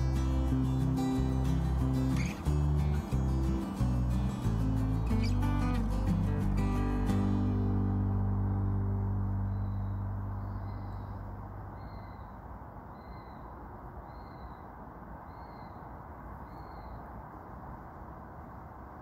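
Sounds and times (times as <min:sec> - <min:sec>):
background music: 0:00.0 - 0:10.5
steady low hiss: 0:00.0 - 0:19.0.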